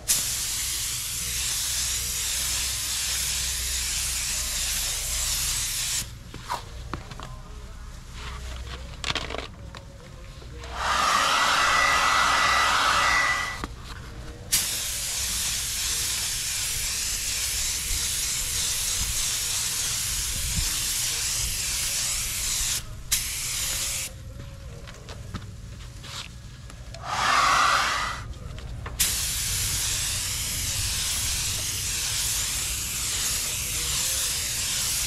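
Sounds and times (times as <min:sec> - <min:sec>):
spray gun hissing: 0:00.1 - 0:06.1, 0:10.7 - 0:13.6, 0:14.5 - 0:24.1, 0:27.0 - 0:28.3, 0:29.0 - 0:35.0.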